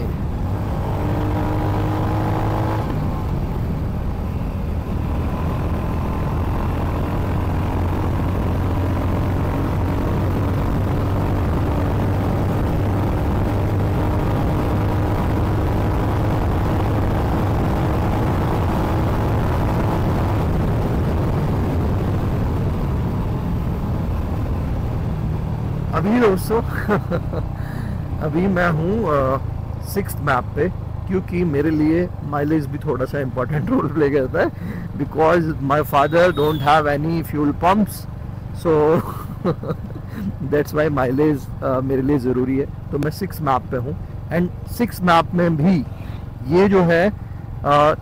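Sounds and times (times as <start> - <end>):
wind noise on microphone: 7.8 - 24.8.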